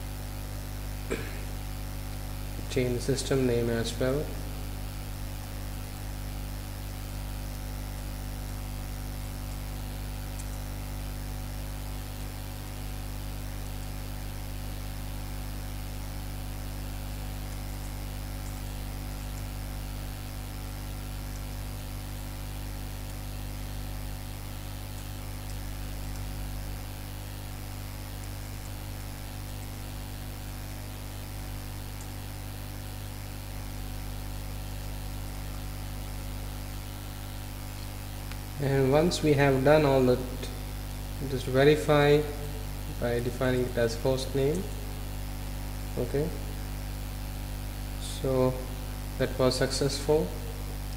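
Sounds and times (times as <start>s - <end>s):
electrical mains hum: 0.0s - 50.9s
recording hiss: 2.6s - 4.6s, 36.6s - 45.0s, 45.8s - 46.6s, 47.9s - 50.8s.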